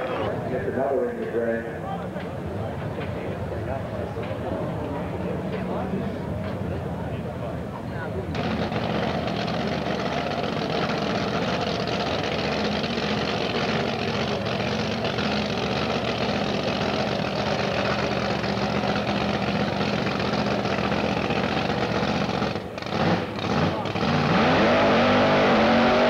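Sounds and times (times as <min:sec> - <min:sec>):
car engine idling: 0:08.4 - 0:24.1.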